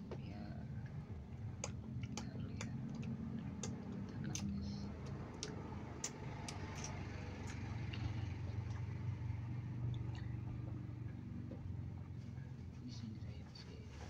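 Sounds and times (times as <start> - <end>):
low engine-like rumble: 0.0 - 14.0
lip smacks and clicks: 0.8 - 9.0, 9.8 - 10.9.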